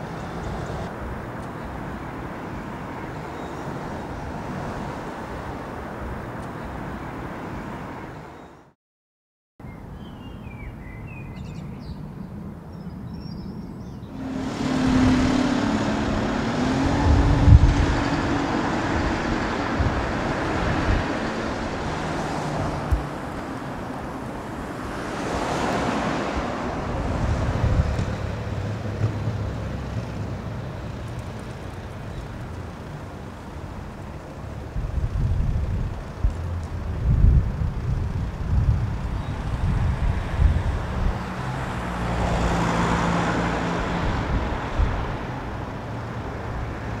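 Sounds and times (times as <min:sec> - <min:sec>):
low road rumble: 0:00.0 - 0:08.7, 0:09.7 - 0:47.0
motor vehicle passing: 0:14.0 - 0:47.0.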